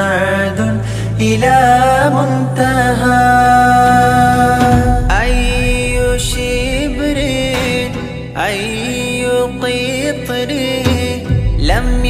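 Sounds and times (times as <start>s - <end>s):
low musical backing: 0.0s - 12.0s.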